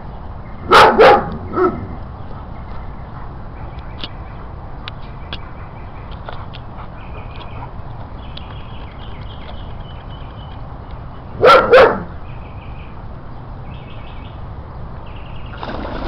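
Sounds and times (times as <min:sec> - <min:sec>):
dog barking: 0:00.7 - 0:01.8, 0:11.4 - 0:12.1.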